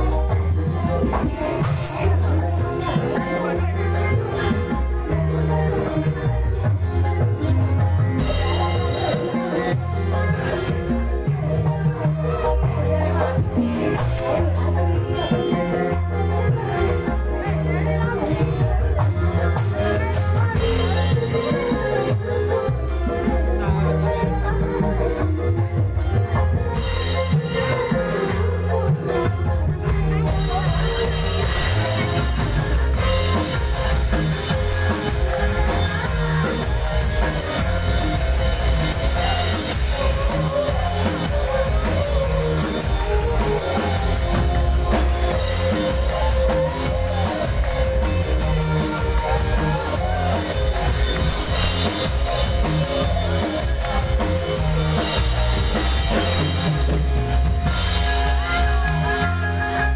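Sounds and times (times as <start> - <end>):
live band over loud sound system: 0.0 - 59.9.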